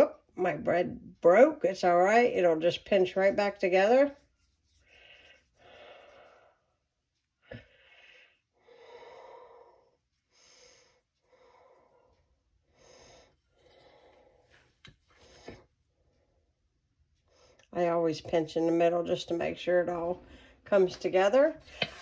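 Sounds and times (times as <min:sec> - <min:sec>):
soft breathing: 0:04.4 - 0:16.5, 0:20.2 - 0:20.7.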